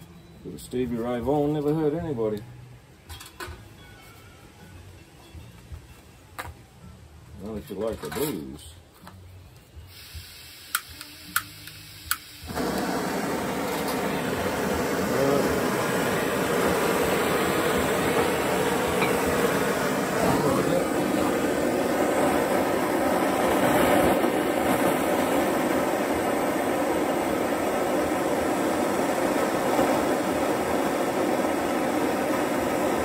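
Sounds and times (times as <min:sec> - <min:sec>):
propane torch hissing: 0:09.8 - 0:33.0
lighter clicks: 0:09.9 - 0:13.0.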